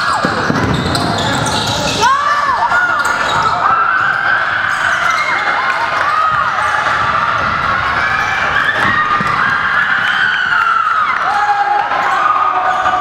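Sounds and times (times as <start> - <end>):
basketball bouncing: 0.0 - 2.1
sneaker squeaks on floor: 0.0 - 2.2.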